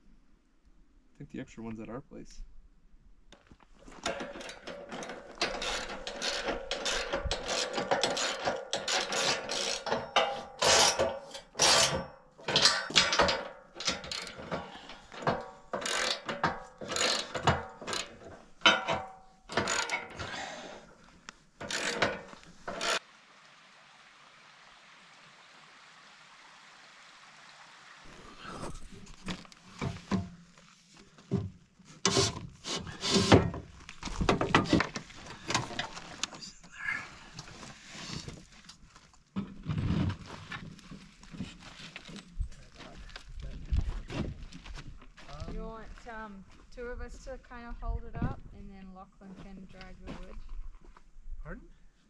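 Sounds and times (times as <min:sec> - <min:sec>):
metal ratcheting clicks: 0:04.0 - 0:20.3, 0:21.6 - 0:23.0.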